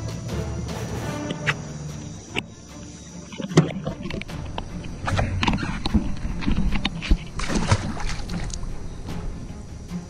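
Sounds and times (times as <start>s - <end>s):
background music with steady beat: 0.0s - 10.0s
water splashing: 3.3s - 8.8s.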